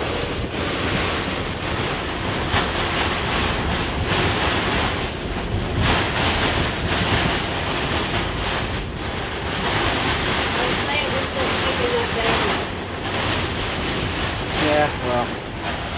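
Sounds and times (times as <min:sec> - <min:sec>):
gusting wind: 0:00.0 - 0:15.9
heavy rain on vinyl: 0:00.0 - 0:15.9
wind buffeting microphone: 0:00.0 - 0:15.9.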